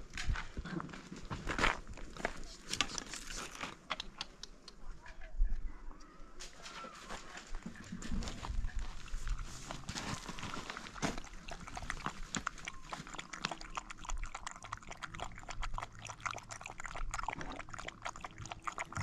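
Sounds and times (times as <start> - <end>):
puppy lapping water: 7.8 - 19.0.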